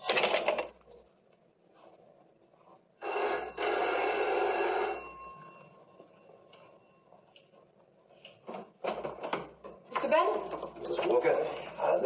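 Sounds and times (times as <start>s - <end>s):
electric doorbell ringing: 3.0s - 5.8s.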